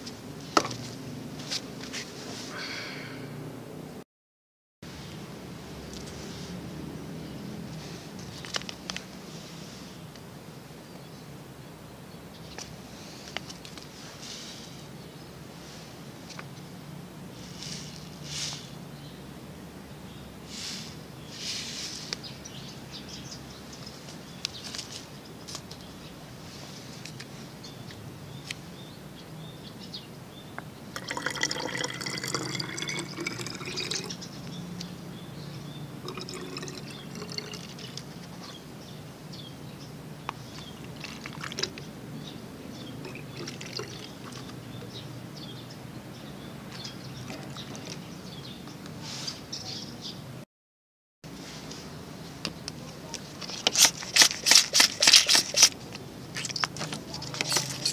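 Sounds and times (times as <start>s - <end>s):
water pouring into plastic container: 31.0s - 34.2s, 36.0s - 38.1s, 41.0s - 41.8s, 43.0s - 44.5s
plastic clicks and rustles: 53.4s - 57.9s.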